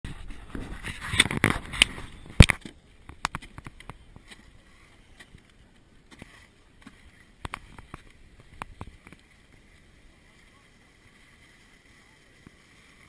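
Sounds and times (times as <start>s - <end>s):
rustling on camera microphone: 0.1s - 5.5s
faint scattered clicks: 1.2s - 4.5s, 5.2s - 9.6s.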